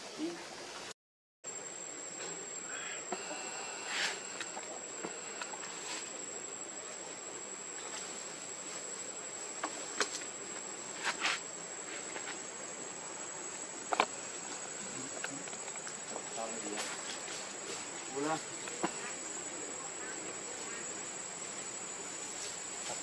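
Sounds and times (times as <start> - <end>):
high-pitched insect drone: 2.2 - 6.6.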